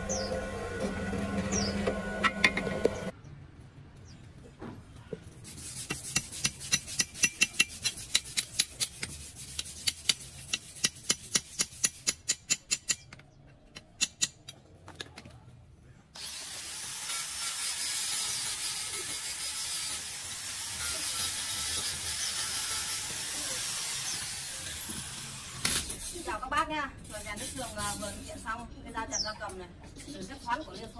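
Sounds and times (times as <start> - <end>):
electric disc grinder running: 0.0 - 3.1, 16.2 - 25.7.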